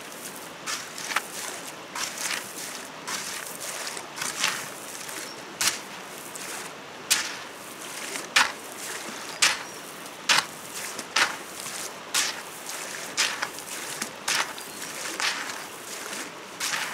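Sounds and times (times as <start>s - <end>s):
steady hiss: 0.0s - 8.0s.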